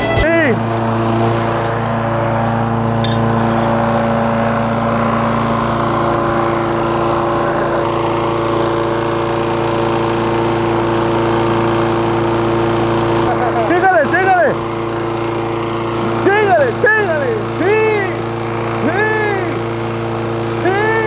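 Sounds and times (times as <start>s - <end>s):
lawn mower engine running: 0.0s - 21.0s.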